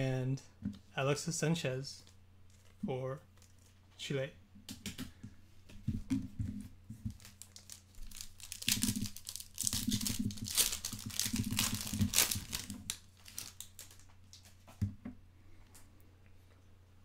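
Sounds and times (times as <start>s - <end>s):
wrapper tearing and crinkling: 7.1s - 14.5s.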